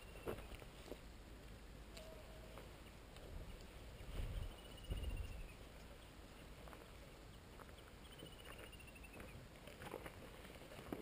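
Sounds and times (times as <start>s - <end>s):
wind rumble on microphone: 3.2s - 5.9s.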